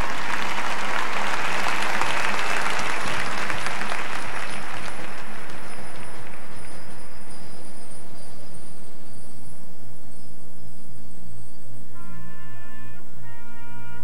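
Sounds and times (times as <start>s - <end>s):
large audience applauding: 0.0s - 7.3s.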